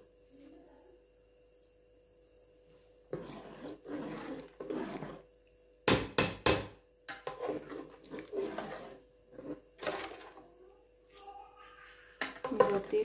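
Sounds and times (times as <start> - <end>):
spoon stirring rice in water: 3.0 - 10.6, 12.2 - 13.0.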